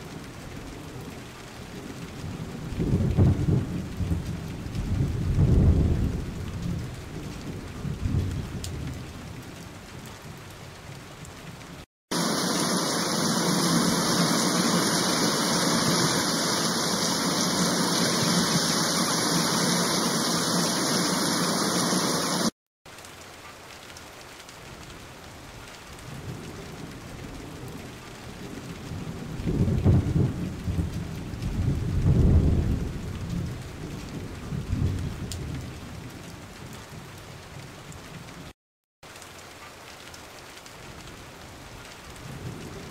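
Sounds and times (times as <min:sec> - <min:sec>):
fountain jets spraying hiss: 0:12.1 - 0:22.5
waterfall splashing into pond: 0:12.1 - 0:25.7.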